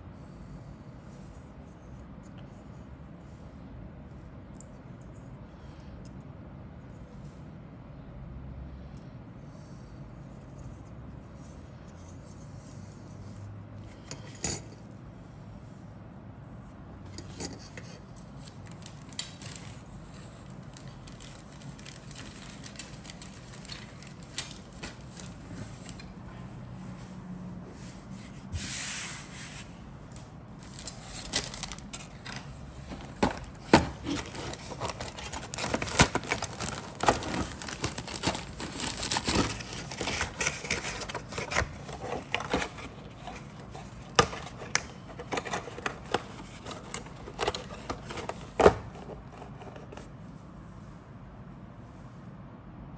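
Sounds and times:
plastic bag crinkling: 20.4s - 25.4s, 30.6s - 48.4s
plastic sprues clicking: 30.6s - 49.6s.

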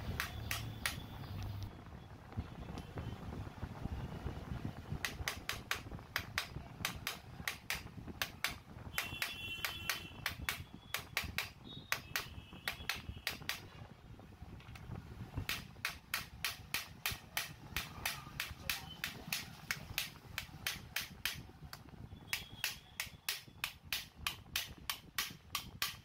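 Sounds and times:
hammer tapping on metal pipe: 5.0s - 13.6s, 15.4s - 19.4s, 22.3s - 26.0s.

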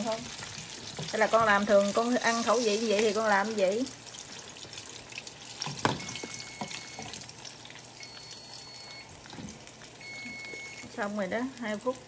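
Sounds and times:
chicken wings sizzling in a pot: 0.0s - 12.0s
faint electronic beep: 8.0s - 9.1s, 10.0s - 10.9s.

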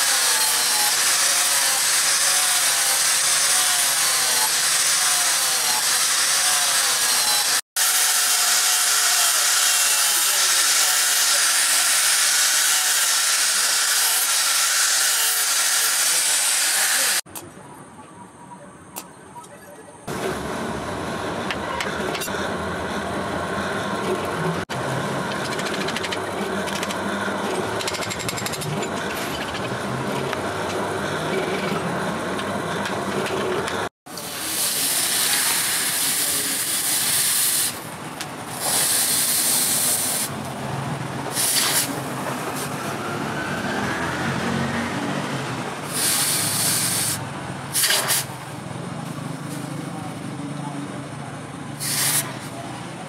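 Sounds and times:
electric drill boring through steel: 0.0s - 17.2s
hot steel hissing in water: 34.1s - 37.8s, 38.6s - 40.3s, 41.3s - 42.0s, 45.8s - 48.3s, 51.8s - 52.3s.

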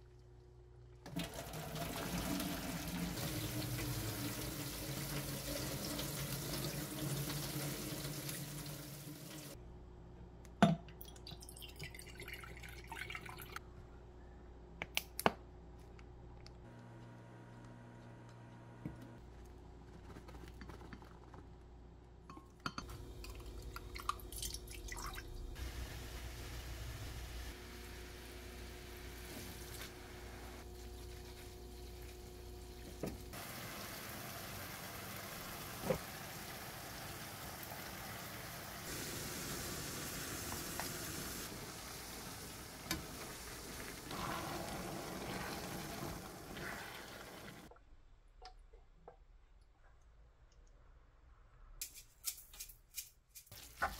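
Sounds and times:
food frying in a pan: 1.1s - 9.6s, 25.5s - 47.7s.

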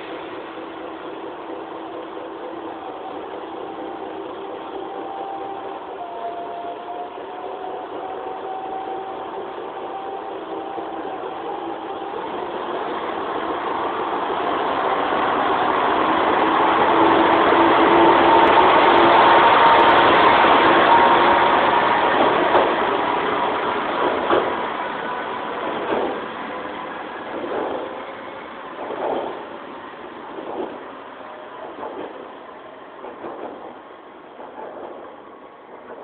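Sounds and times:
diesel railcar engine running: 0.0s - 36.0s.

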